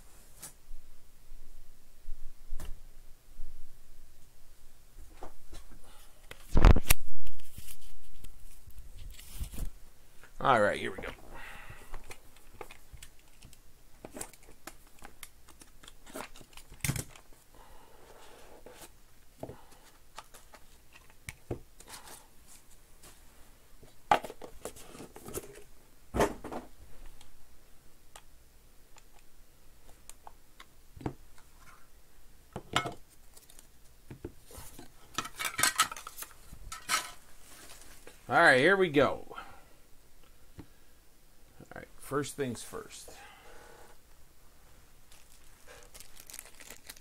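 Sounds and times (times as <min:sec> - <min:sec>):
packaging rustling and crinkling: 0:12.0 - 0:17.4, 0:33.2 - 0:33.9, 0:34.5 - 0:38.2, 0:45.0 - 0:47.0.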